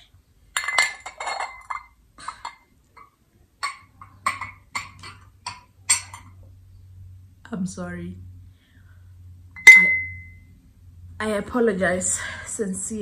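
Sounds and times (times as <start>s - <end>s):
glass dishware clink: 0.6s - 6.4s, 9.6s - 10.4s.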